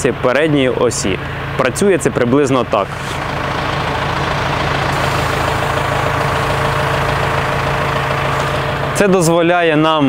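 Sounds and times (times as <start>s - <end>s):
tractor diesel engine running: 0.0s - 10.0s.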